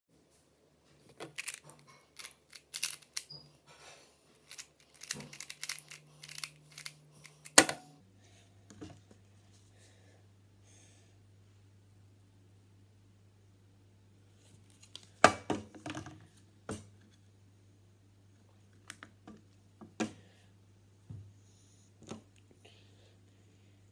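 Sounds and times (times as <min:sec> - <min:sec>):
faint low hum: 0:00.2 - 0:23.9
puzzle cube plastic clicks: 0:01.2 - 0:03.4, 0:04.4 - 0:07.7.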